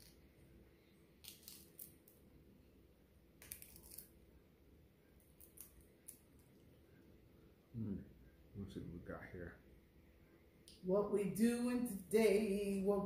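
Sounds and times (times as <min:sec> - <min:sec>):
crab shell cracking: 0:01.2 - 0:02.2, 0:03.4 - 0:04.1, 0:05.2 - 0:06.6.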